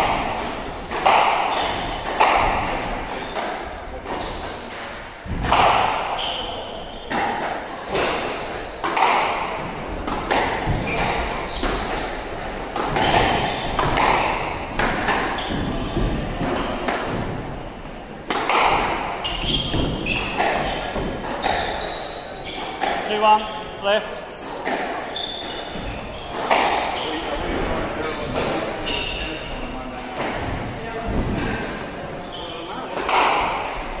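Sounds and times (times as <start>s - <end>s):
squash ball smacking rackets and walls: 0.0s - 23.5s, 24.3s - 34.0s
sneakers squeaking on wooden floor: 0.0s - 34.0s.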